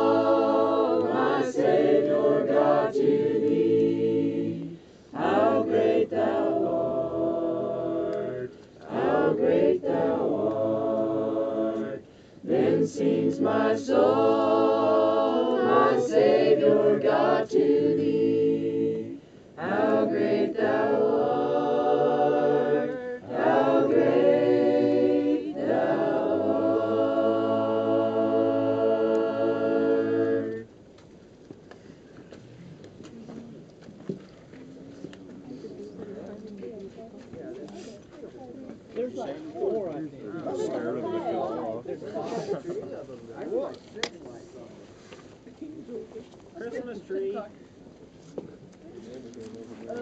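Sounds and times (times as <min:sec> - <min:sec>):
group singing a cappella: 0:00.0 - 0:30.8.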